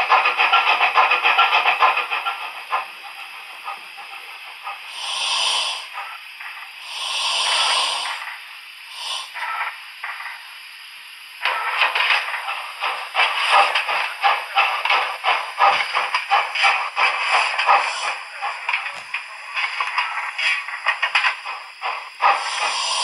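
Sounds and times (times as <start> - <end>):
model locomotive steam chuffs: 0.0 - 23.0.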